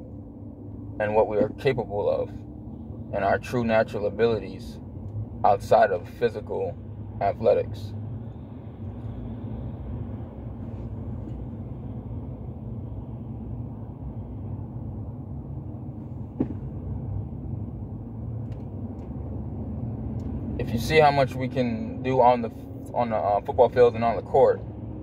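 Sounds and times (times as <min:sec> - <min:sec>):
road and engine rumble: 0:00.0 - 0:25.0.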